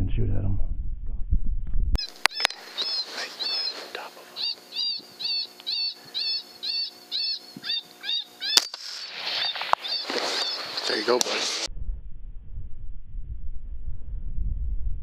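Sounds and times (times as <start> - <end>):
faint steady hum: 1.9 - 15.0
high-pitched squealing distress call: 2.0 - 11.7.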